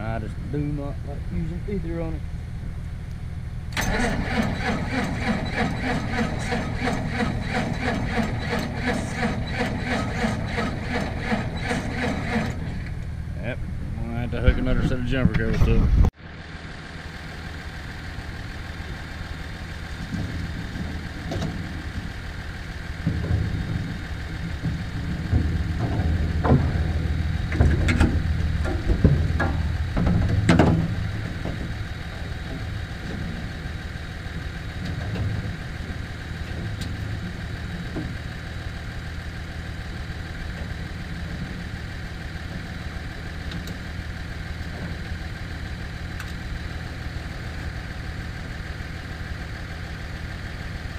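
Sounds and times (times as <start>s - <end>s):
truck engine idling: 0.0s - 15.0s, 16.2s - 50.9s
metal clanks and knocks: 19.9s - 33.8s, 34.7s - 38.2s.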